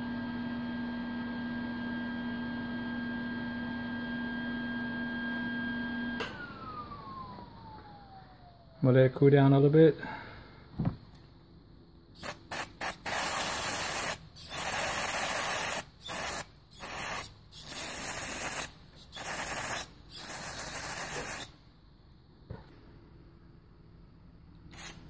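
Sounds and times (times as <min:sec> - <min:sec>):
aerosol spray can hissing: 0:12.2 - 0:21.6, 0:24.7 - 0:25.0.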